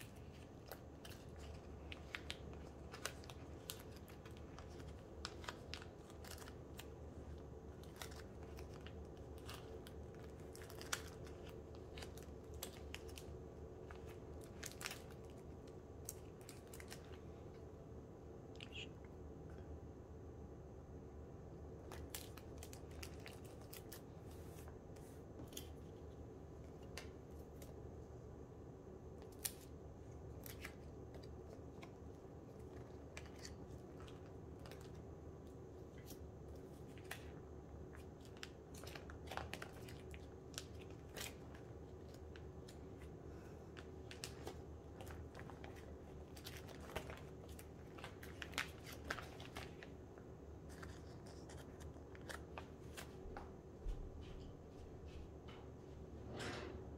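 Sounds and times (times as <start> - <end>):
plastic sleeves clicking and crinkling: 0.0 - 17.3, 35.9 - 53.6
faint steady hum: 0.0 - 56.9.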